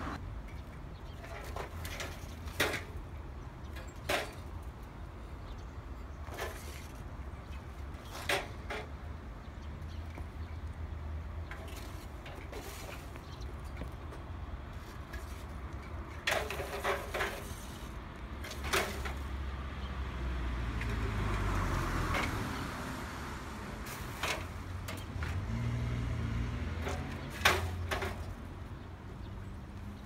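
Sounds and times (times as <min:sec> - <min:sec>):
low traffic rumble: 0:00.0 - 0:30.0
bicycle frames clanking: 0:00.4 - 0:05.6, 0:06.2 - 0:10.6, 0:11.4 - 0:19.4, 0:23.8 - 0:25.4, 0:26.7 - 0:28.8.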